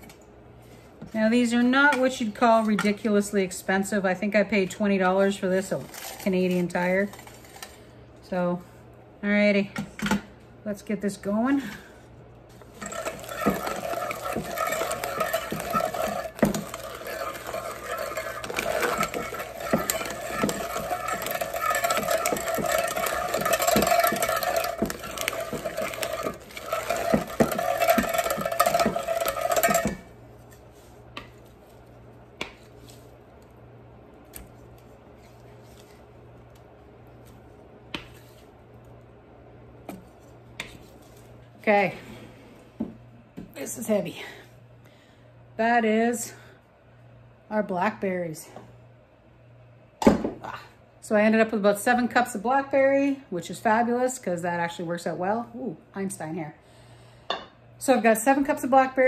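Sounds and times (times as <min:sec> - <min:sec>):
food mill metallic scraping: 0:12.5 - 0:30.2.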